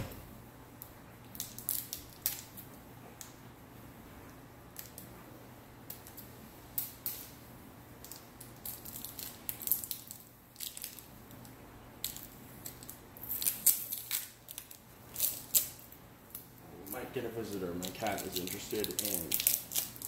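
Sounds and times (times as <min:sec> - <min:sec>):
packaging crinkling: 0:08.1 - 0:11.4, 0:12.0 - 0:16.4, 0:17.4 - 0:20.0.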